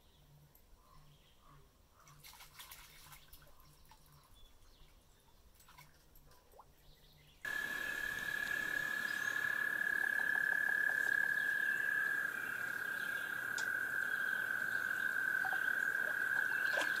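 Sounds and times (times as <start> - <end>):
frog trilling: 7.5 - 17.0.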